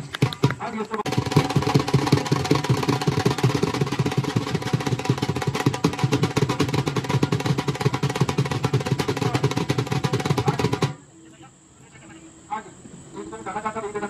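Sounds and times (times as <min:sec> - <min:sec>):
drums beaten in fast rhythm: 0:00.0 - 0:11.0.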